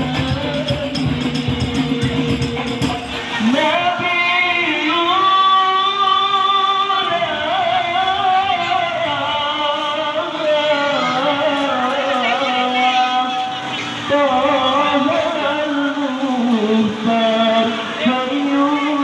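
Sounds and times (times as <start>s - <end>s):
frame drum beats: 0.0s - 3.3s.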